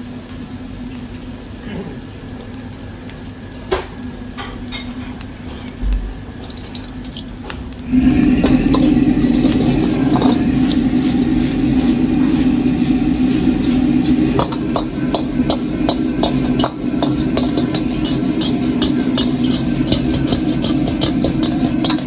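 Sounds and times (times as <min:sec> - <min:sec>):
gas burner roaring: 0:00.0 - 0:22.0
metal ladle scraping a wok: 0:07.9 - 0:22.0.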